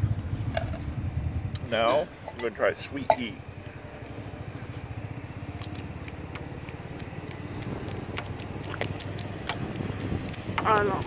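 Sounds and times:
low background rumble: 0.0 - 11.0
peanut shelling and chewing: 5.1 - 11.0.

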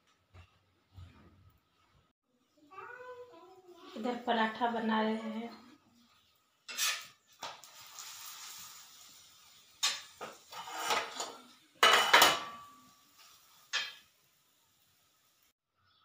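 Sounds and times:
metal spatula clattering on griddle: 6.7 - 7.6, 9.8 - 14.1.

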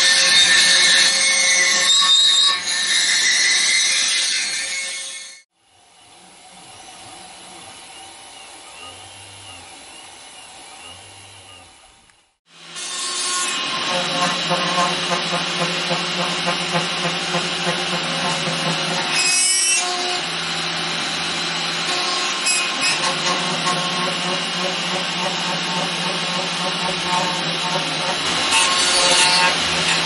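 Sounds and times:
milling machine cutting wood: 12.6 - 30.0
high whine sweeping: 22.8 - 30.0.

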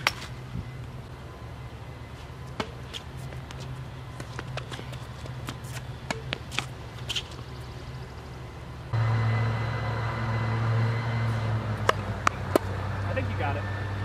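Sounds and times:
low engine-like hum: 0.0 - 14.0
tennis ball struck and bouncing: 2.6 - 3.0, 6.0 - 7.3, 11.6 - 12.8.

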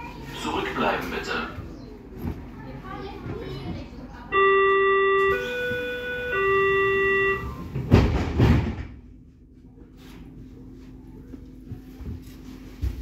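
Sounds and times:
three-note door warning chime: 4.4 - 7.7
sliding doors thudding shut: 7.4 - 9.0.

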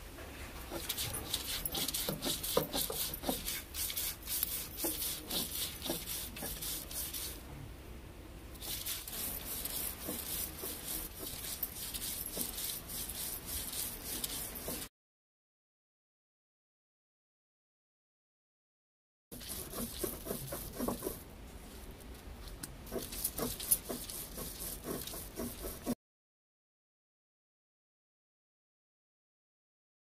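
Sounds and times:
stone roller scraping on grinding stone: 0.7 - 7.4, 8.6 - 14.9, 19.4 - 21.2, 22.9 - 26.0.

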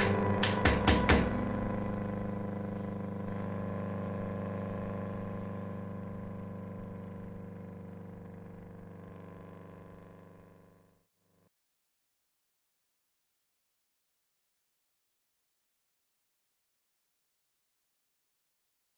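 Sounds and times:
droning synth chord: 0.0 - 11.0.

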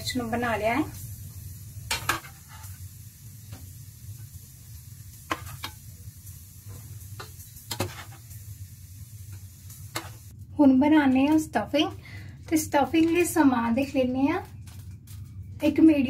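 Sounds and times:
peppers sizzling in oil: 0.0 - 10.4.

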